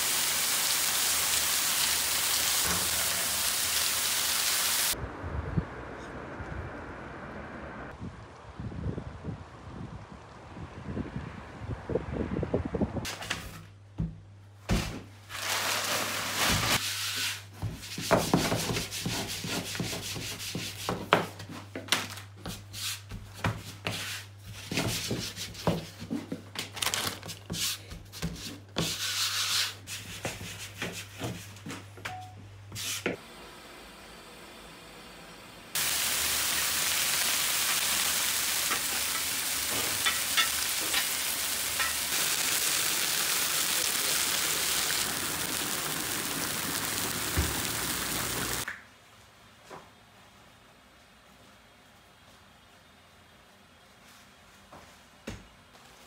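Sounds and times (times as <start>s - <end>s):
sizzling hiss of cooking: 0.0s - 5.0s, 35.8s - 48.7s
hands working dough on wooden table: 16.6s - 31.9s.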